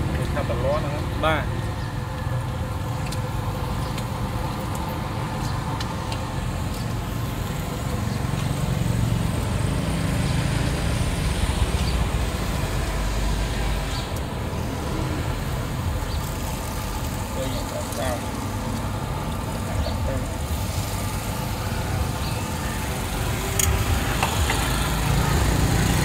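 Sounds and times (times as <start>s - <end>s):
motor vehicle engine rumbling: 0.0s - 26.0s.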